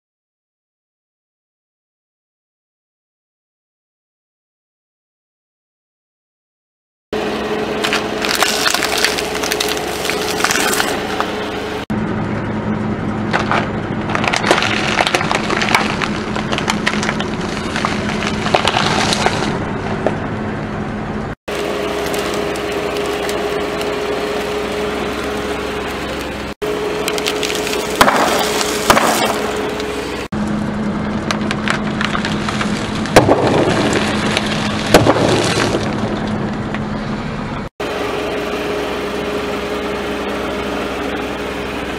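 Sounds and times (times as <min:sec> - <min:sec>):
car engine idling: 0:07.2 - 0:41.9
sharp cracks: 0:07.8 - 0:11.3, 0:13.3 - 0:20.2, 0:27.0 - 0:30.3, 0:31.2 - 0:36.8
tyre crushing snack packs: 0:07.9 - 0:11.1, 0:27.0 - 0:29.9.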